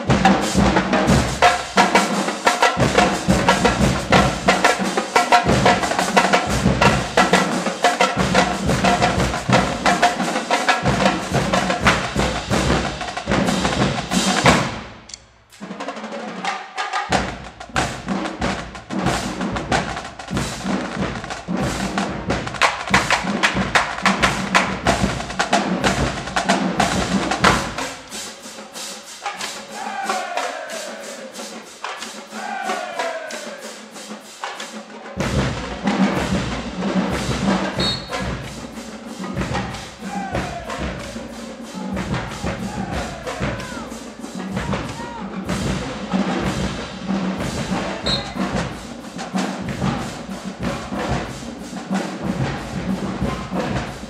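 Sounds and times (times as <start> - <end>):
snare drums: 0.0 - 54.0
tenor drums: 0.0 - 54.0
bass drums: 10.8 - 15.1, 17.1 - 27.9, 39.3 - 41.1, 41.8 - 43.9, 44.5 - 49.0, 49.6 - 51.4.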